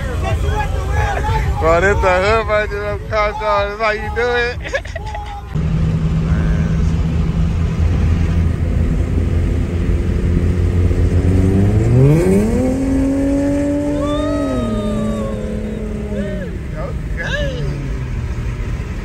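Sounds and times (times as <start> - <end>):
car engine revving: 5.6 - 19.0.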